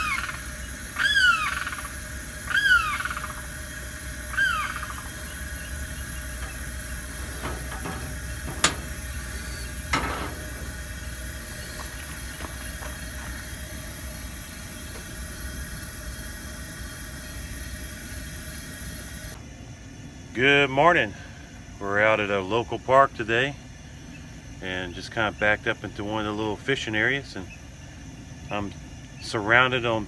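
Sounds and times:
bird falling calls: 0.0s - 15.8s
camp stove burner hissing: 0.0s - 19.4s
percolator clanking on metal grate: 3.8s - 15.9s.

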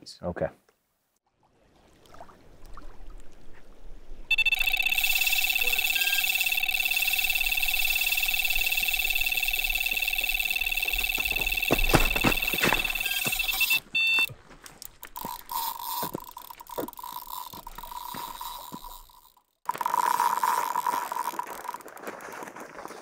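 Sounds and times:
faint steady tone: 4.3s - 14.3s
rapid pulsing bite alarm: 4.3s - 14.3s, 15.0s - 21.8s
footsteps on stones: 9.6s - 19.2s, 20.4s - 23.0s.

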